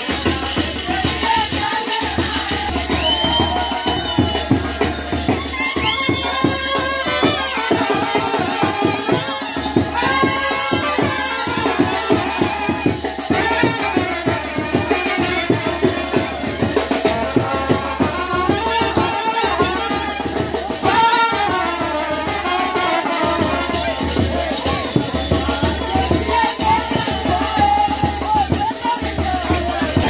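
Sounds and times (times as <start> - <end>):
quick steady drum beat: 0.0 - 30.0
clarinet and trumpets melody: 5.4 - 12.8, 17.4 - 23.9.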